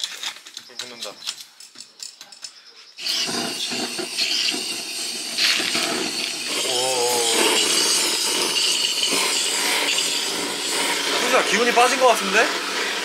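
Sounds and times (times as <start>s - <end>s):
fire hissing: 2.9s - 13.0s
charcoal crackling: 3.0s - 13.0s.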